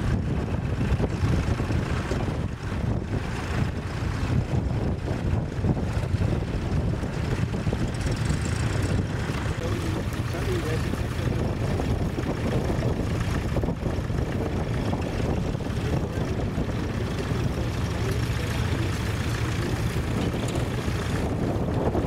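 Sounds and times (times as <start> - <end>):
tractor engine idling: 0.0 - 22.0
wind buffeting microphone: 0.0 - 22.0.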